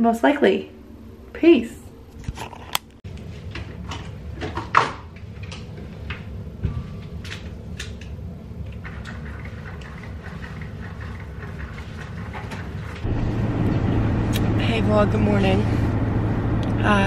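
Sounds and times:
low hum: 13.0s - 17.0s.

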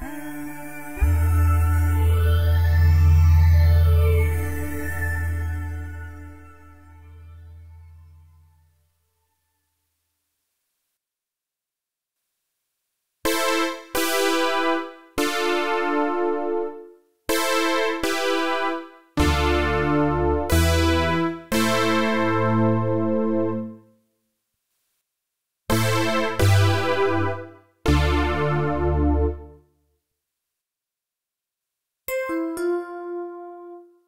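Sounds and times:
bright synthesizer chords: 0.0s - 8.8s, 13.3s - 23.8s, 25.7s - 29.5s
low synth bass notes: 1.0s - 8.6s, 19.2s - 23.6s.

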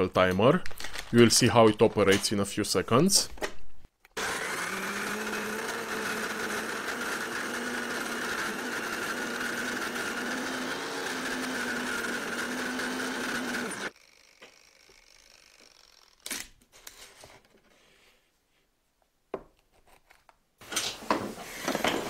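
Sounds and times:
coffee grinder motor humming: 4.2s - 16.1s.

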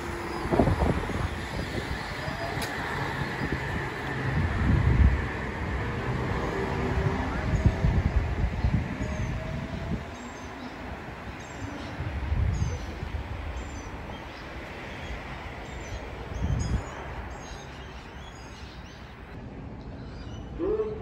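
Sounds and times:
electric train pulling away: 0.0s - 17.4s
birds chirping: 7.4s - 19.4s.

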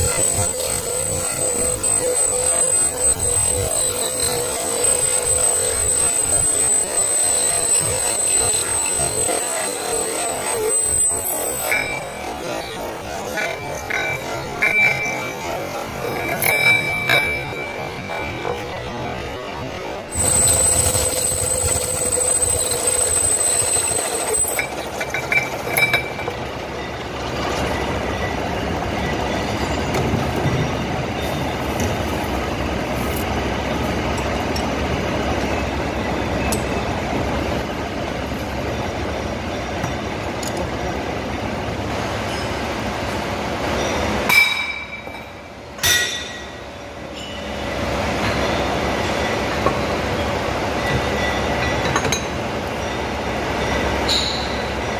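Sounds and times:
lathe machining metal: 0.0s - 54.9s
sharp metallic knocks: 45.8s - 46.5s.

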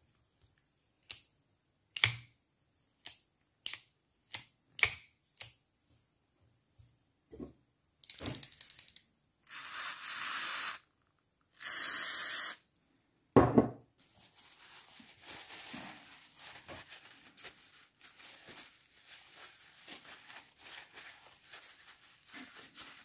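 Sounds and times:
aerosol spray can hissing: 9.4s - 10.8s, 11.6s - 12.6s
paper tissue rustling: 14.0s - 23.0s.

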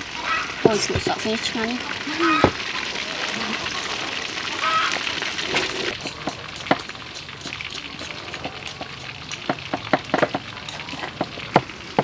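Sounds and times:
pestle in stone mortar: 5.9s - 12.0s.

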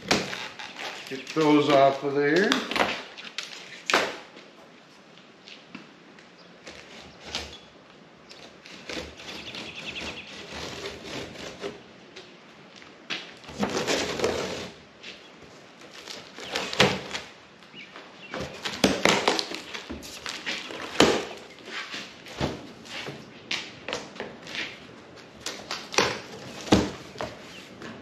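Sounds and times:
cardboard rustling scrape: 13.5s - 15.2s.

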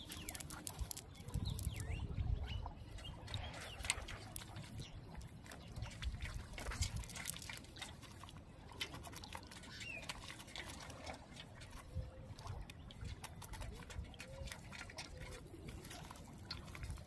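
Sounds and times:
fishing net rustling: 0.0s - 1.8s, 6.0s - 12.5s.

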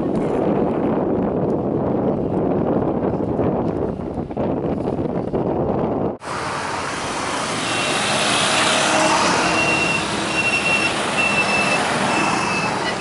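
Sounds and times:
motorbike and road traffic: 6.2s - 13.0s.

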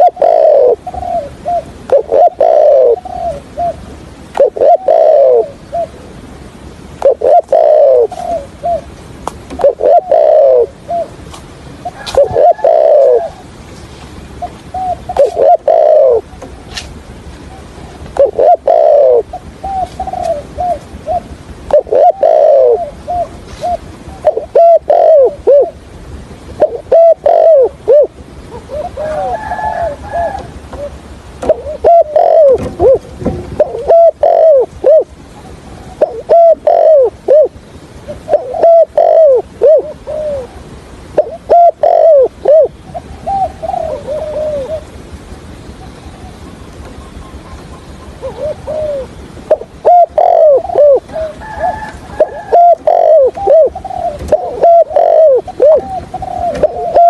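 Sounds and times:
dove cooing: 0.0s - 6.3s, 7.0s - 13.6s, 14.4s - 16.8s, 17.4s - 25.8s, 26.5s - 45.2s, 45.8s - 57.0s.

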